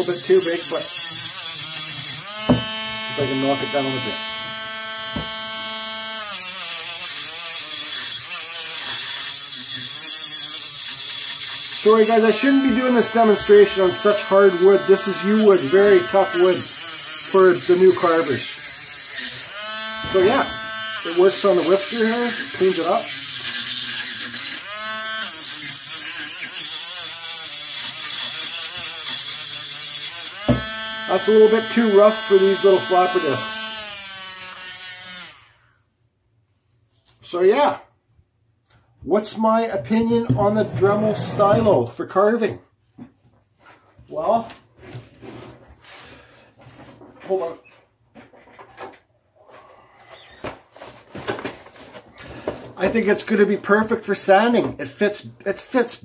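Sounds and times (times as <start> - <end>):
rotary tool motor whining: 0.0 - 35.8
sanding flaps rasping on wood: 20.0 - 24.6.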